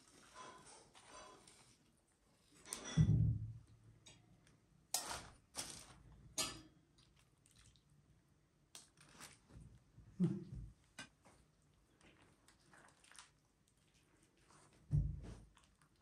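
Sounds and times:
metal utensils clinking on plate: 0:06.4 - 0:06.7.

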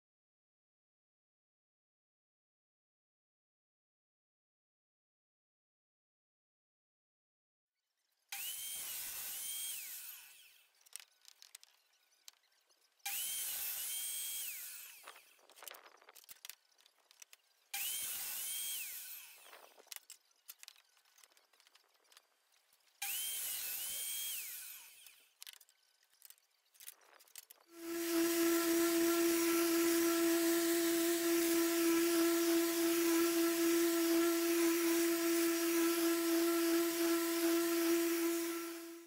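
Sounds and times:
table saw cutting wood: 0:08.3 - 0:10.7, 0:13.0 - 0:16.6, 0:17.2 - 0:20.0, 0:23.0 - 0:25.6, 0:27.7 - 0:39.0.

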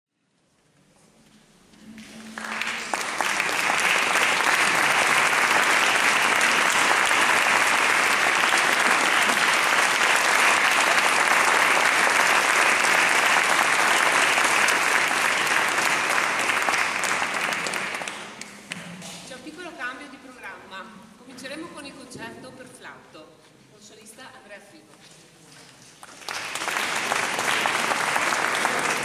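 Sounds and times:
audience applauding: 0:01.9 - 0:18.8, 0:26.0 - 0:29.0.

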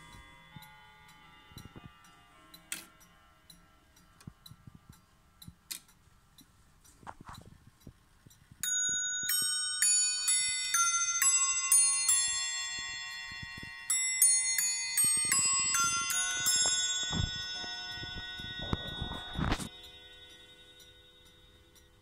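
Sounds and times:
clock clicks: 0:00.1 - 0:09.7
clock chime on bells: 0:08.6 - 0:22.0
clock ticking faintly: 0:15.0 - 0:22.0.

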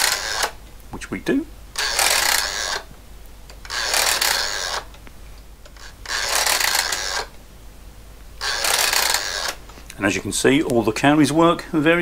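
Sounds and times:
mechanical calculator gears rasping: 0:00.0 - 0:00.6, 0:01.7 - 0:02.9, 0:03.6 - 0:05.0, 0:05.7 - 0:07.4, 0:08.4 - 0:09.6.

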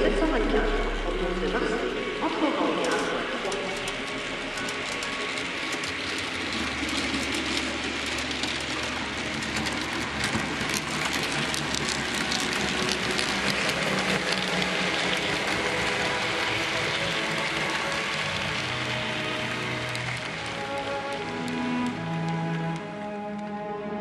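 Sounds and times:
low motor hum: 0:00.0 - 0:23.6
model train wheels clicking: 0:02.2 - 0:23.7.

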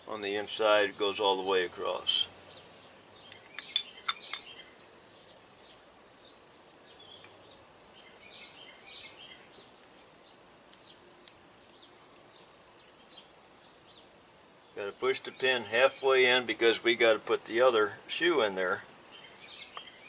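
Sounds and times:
faint bird chirps: 0:02.1 - 0:16.2, 0:17.8 - 0:20.0.

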